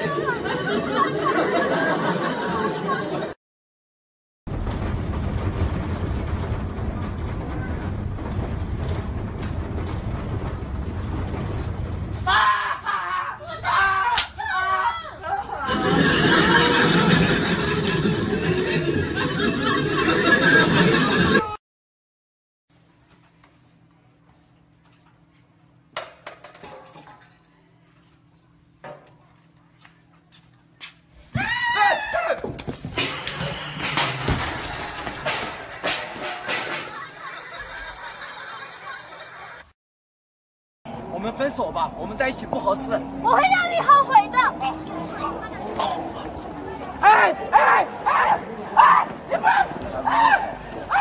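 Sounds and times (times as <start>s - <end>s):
bus engine rumble: 40.9s - 51.0s.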